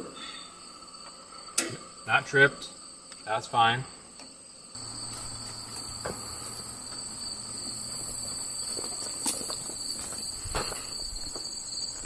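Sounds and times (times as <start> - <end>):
crickets trilling: 0.0 - 12.0
outdoor background noise: 0.0 - 12.0
footsteps on dirt: 4.8 - 12.0.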